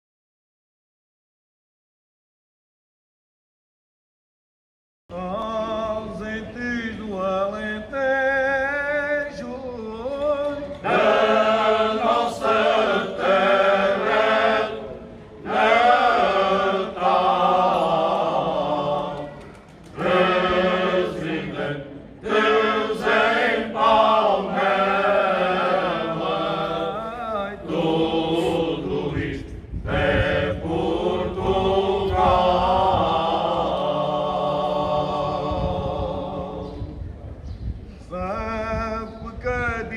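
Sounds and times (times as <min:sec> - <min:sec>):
male choir singing unaccompanied: 0:05.1 - 0:37.0.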